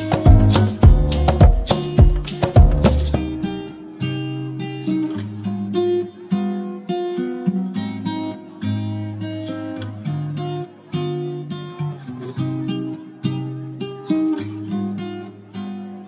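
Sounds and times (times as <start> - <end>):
sharp percussive guitar strokes: 0.0 - 3.7
acoustic guitar strumming: 0.0 - 16.0.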